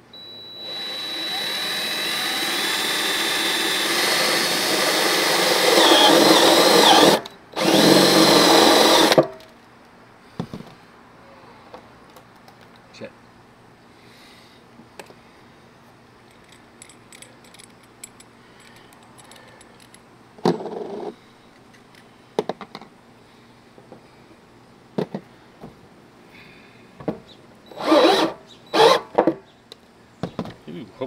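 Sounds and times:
cordless drill boring plastic: 0.2 - 9.2, 27.7 - 29.0.

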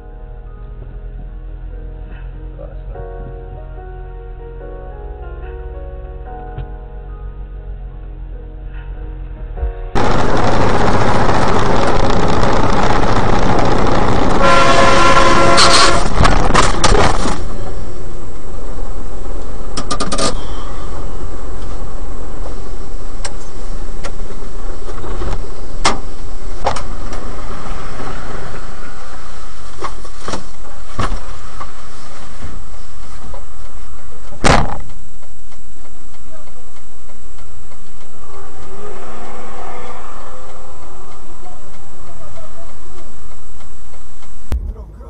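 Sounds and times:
truck engine running: 9.9 - 45.0
vehicle horn: 13.9 - 16.8.

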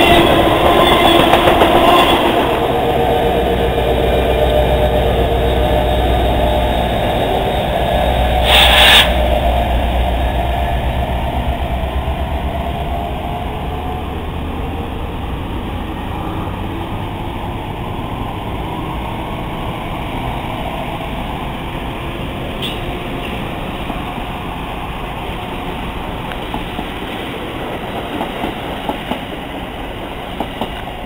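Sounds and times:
diesel locomotive rumble: 0.0 - 31.0
train coaches rolling: 0.0 - 31.0
short hiss: 8.4 - 9.2.

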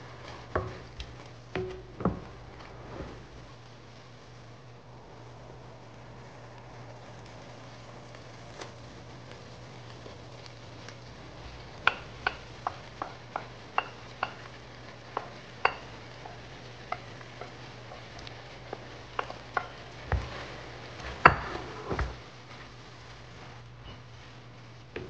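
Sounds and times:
heavy knocks and stirring: 0.0 - 3.6, 11.4 - 22.2.

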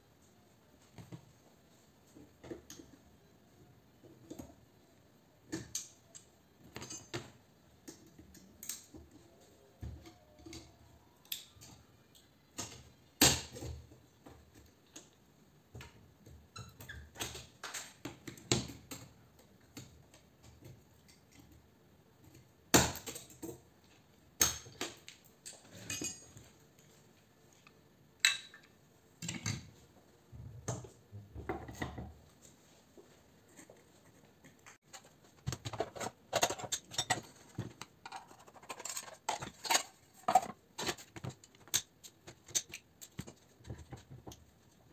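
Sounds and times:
metal tools clinking and scraping: 25.5 - 26.4, 35.8 - 41.0.

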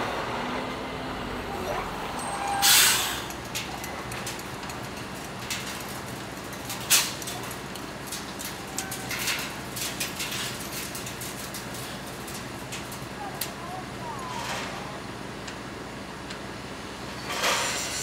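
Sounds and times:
heavy machinery running: 0.0 - 18.0.

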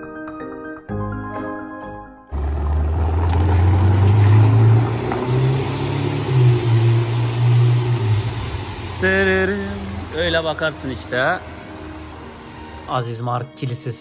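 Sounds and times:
sports car engine pulling away: 2.3 - 11.2.

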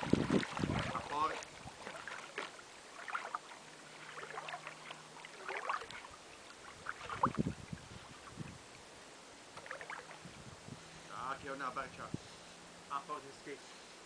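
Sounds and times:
water lapping and splashing: 0.0 - 10.6
steady hiss: 10.2 - 14.0.

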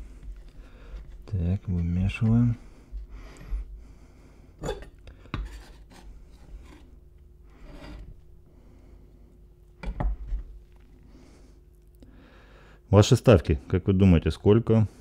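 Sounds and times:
knife scraping wooden cutting board: 0.8 - 2.5, 5.4 - 7.0, 7.6 - 8.1.

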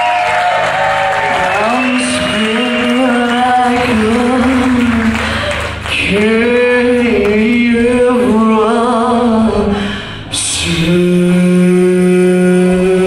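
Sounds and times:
live rock band playing: 0.0 - 8.0
woman singing: 1.2 - 13.0.

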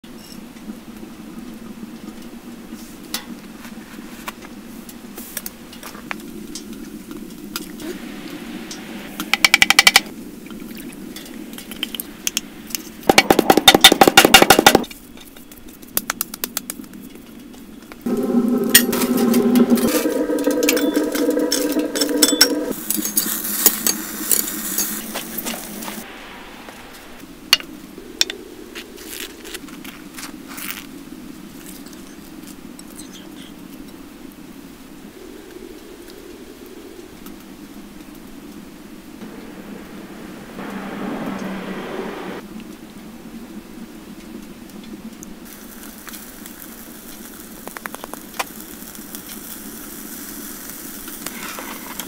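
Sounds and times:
high hiss: 7.4 - 13.8, 18.1 - 29.4, 39.1 - 42.4, 45.5 - 52.0
steady pitched whir: 18.1 - 23.1, 39.1 - 42.5.

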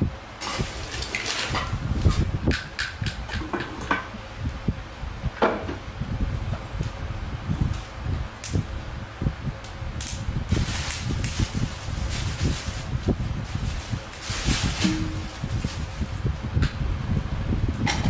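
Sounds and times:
plastic bags crinkling: 0.4 - 1.8, 10.5 - 16.2.

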